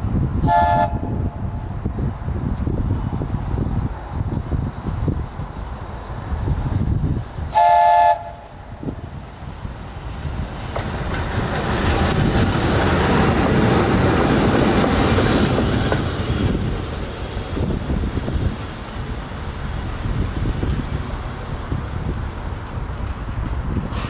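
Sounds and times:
train wheel and rail noise: 0.0s - 24.0s
locomotive horn toot: 0.4s - 1.2s, 7.5s - 8.5s.

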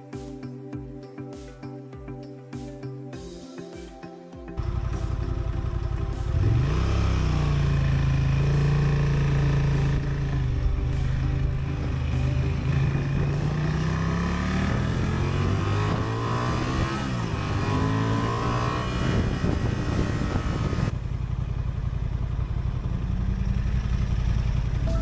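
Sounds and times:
motorcycle engine accelerating: 4.6s - 25.0s
wind rush: 19.0s - 20.9s.

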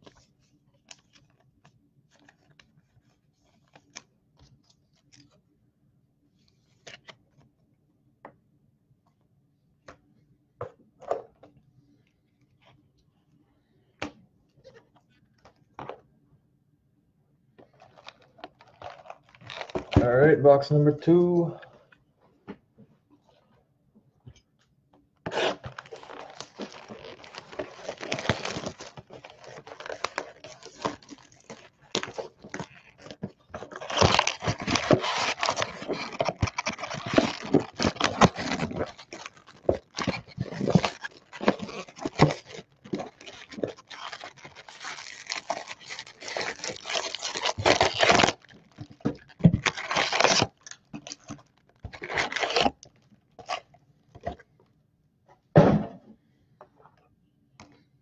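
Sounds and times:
tearing and crinkling packaging: 17.7s - 20.4s, 25.3s - 54.4s.

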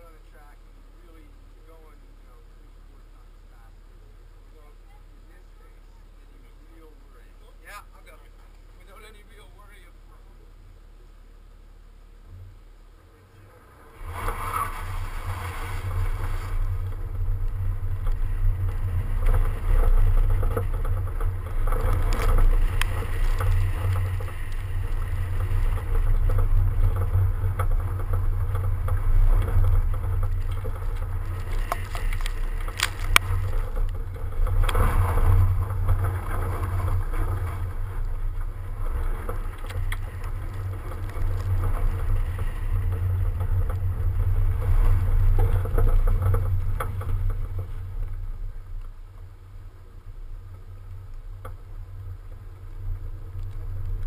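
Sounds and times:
car engine and tyres: 0.0s - 54.0s
road noise: 0.0s - 54.0s
wind buffeting a camera: 14.0s - 48.8s.

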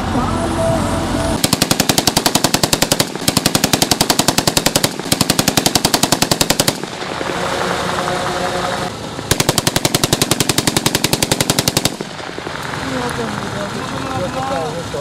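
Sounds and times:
automatic rifle bursts: 1.4s - 7.8s, 9.3s - 12.8s.

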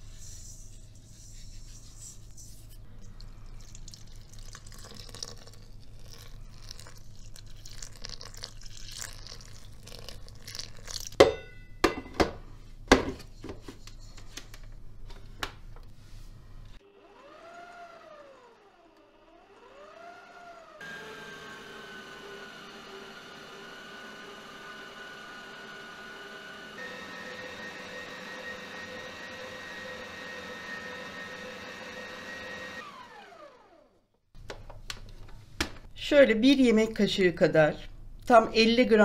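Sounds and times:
liquid pouring into bowl: 3.1s - 11.2s.

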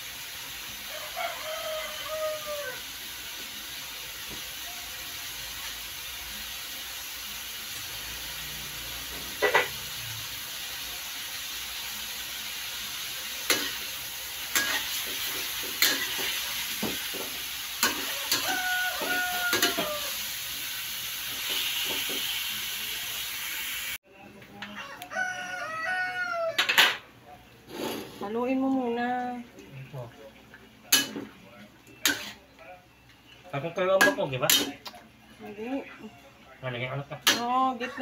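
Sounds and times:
meat sizzling in a wok: 0.0s - 24.0s, 32.1s - 32.4s
rooster crowing: 0.8s - 3.0s, 17.8s - 20.3s, 24.7s - 27.0s
metal spatula scraping pan: 14.5s - 20.0s, 32.0s - 32.4s.

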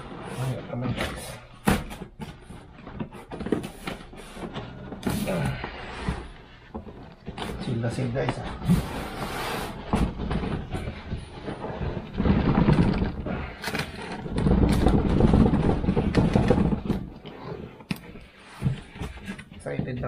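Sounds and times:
cardboard box scraping: 7.3s - 19.6s.

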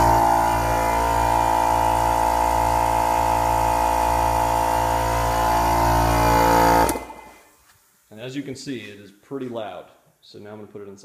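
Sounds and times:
air compressor running: 0.0s - 7.4s.

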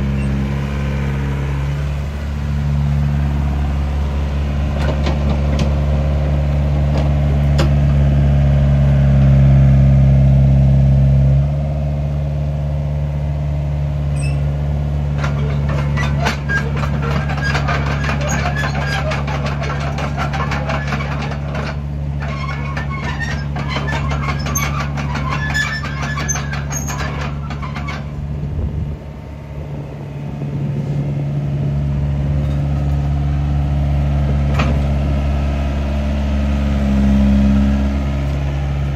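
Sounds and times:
steel tracks clanking and squeaking: 0.0s - 0.7s, 4.7s - 7.9s, 14.1s - 14.5s, 15.1s - 28.7s, 32.3s - 33.0s
excavator diesel engine running: 0.0s - 38.9s.

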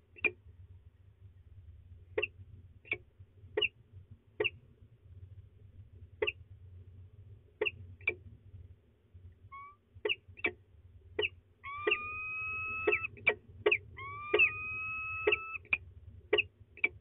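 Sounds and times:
falcon chupping notes: 11.2s - 15.8s
falcon wailing call: 11.6s - 15.8s.

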